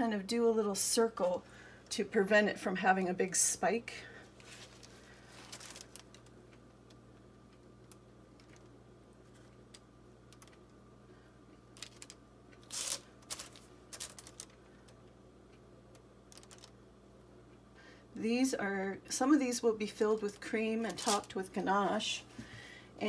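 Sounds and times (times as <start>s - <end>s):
steady low hum: 0.0s - 23.0s
pastry bag clicks and rustles: 4.8s - 6.4s, 11.8s - 15.0s, 16.3s - 16.8s, 20.2s - 21.6s.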